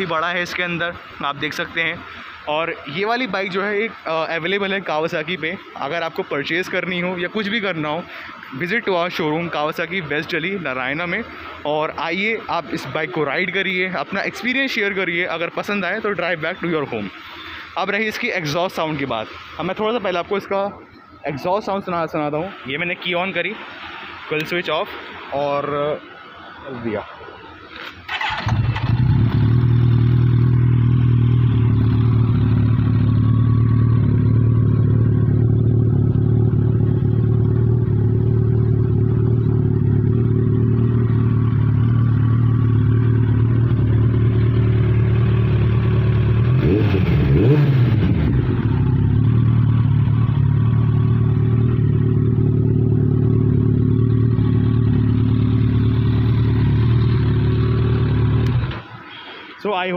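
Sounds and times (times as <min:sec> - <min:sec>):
motorcycle engine starting and idling: 0:27.7 - 0:58.9.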